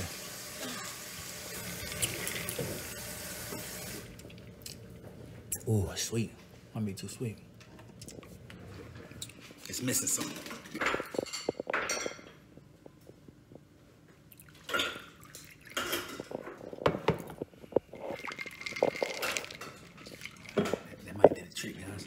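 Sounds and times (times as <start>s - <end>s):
splashing: 14.3s - 16.1s, 17.9s - 21.0s
liquid pouring into glass: 14.4s - 21.0s
ice clinking in glass: 18.2s - 20.8s.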